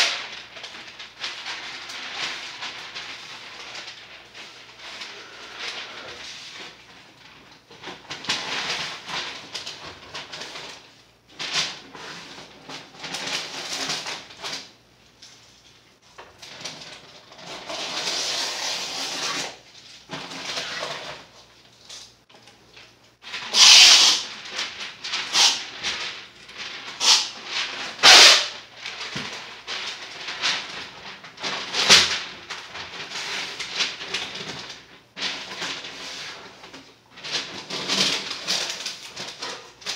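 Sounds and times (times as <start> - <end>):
paper rustling: 0.0 - 18.4, 19.1 - 39.9
masking tape tearing: 17.4 - 19.6, 23.4 - 24.6, 25.2 - 25.8, 27.0 - 28.6.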